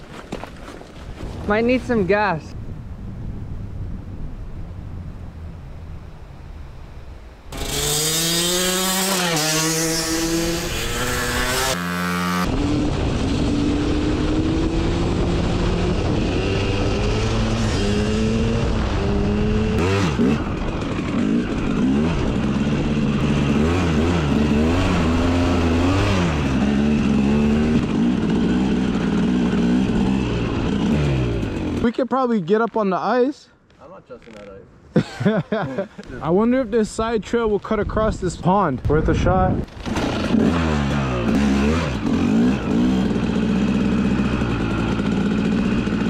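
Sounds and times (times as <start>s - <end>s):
dirt bike engine accelerating: 7.5s - 32.0s, 39.0s - 46.0s.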